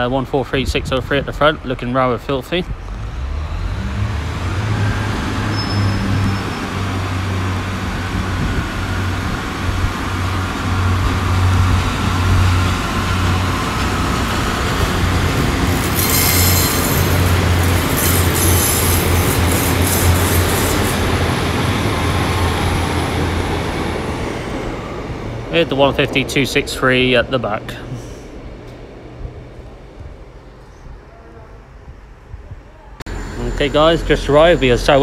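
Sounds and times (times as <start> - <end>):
diesel train engines throbbing: 0.0 - 30.7, 31.6 - 35.0
wheel squeal and scraping: 4.7 - 7.0, 15.3 - 21.3.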